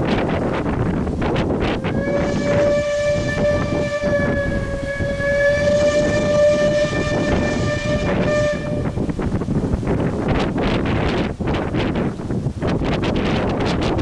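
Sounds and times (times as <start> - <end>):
wind on microphone: 0.0 - 14.0
steam whistle blast: 1.6 - 9.4.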